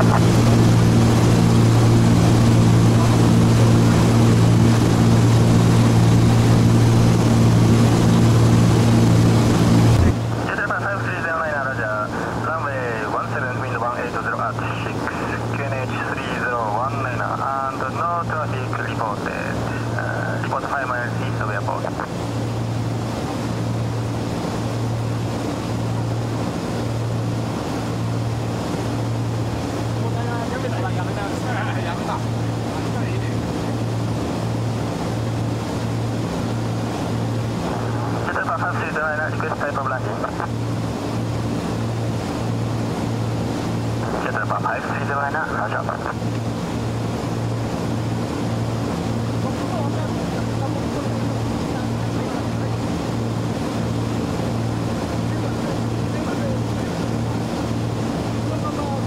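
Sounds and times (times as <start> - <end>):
rush of airflow: 0.0 - 10.6, 33.6 - 38.4
aircraft engines droning in cockpit: 0.0 - 59.0.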